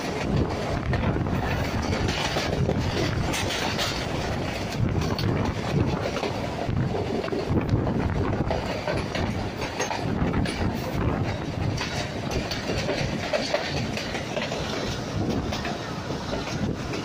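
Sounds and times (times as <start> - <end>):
train wheels rumbling on track: 0.0 - 17.0.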